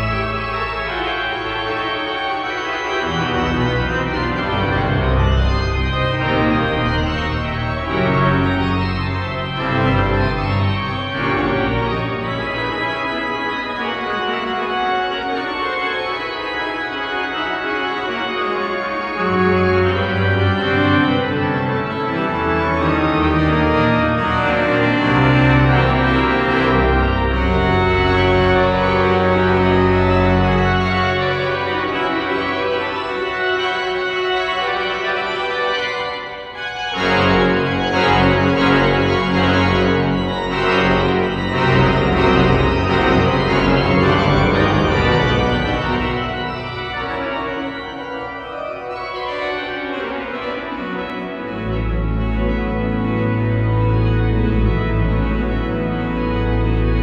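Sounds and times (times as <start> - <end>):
pipe organ chords: 0.0 - 57.0.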